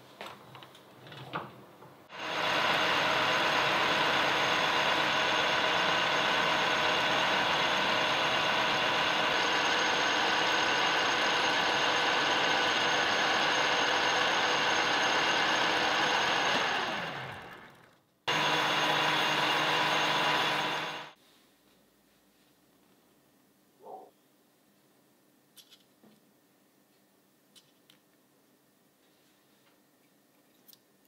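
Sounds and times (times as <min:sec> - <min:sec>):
metal lathe running: 0:02.1 - 0:21.2.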